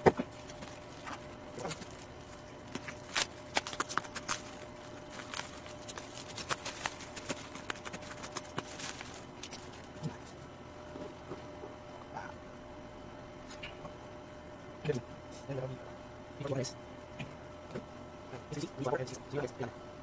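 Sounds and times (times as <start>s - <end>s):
bubble wrap crinkling: 0.2s - 10.4s.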